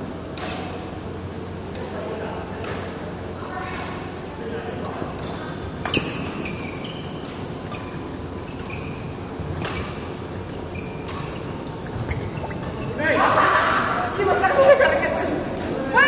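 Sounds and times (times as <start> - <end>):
racket hitting shuttlecock: 5.2 - 12.8
shoes squeaking on court floor: 5.2 - 13.1.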